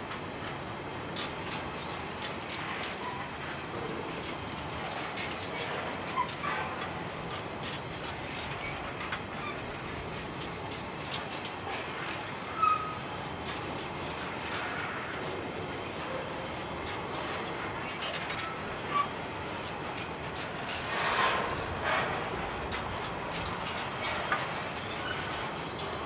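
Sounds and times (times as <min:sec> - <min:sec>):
steel wheels clicking on rail joints: 0:00.0 - 0:26.0
high wheel squeals: 0:12.6 - 0:13.0.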